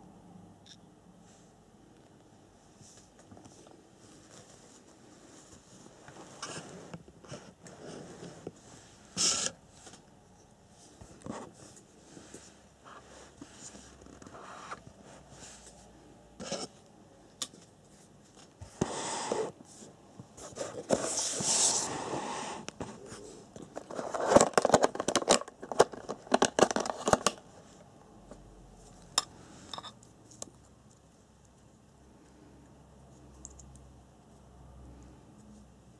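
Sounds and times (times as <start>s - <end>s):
rustling and scraping: 2.7s - 16.8s, 17.5s - 31.7s.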